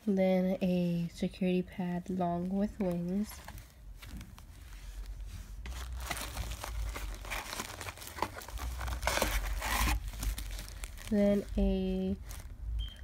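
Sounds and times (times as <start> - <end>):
plastic wrapper crinkling: 2.1 - 13.0.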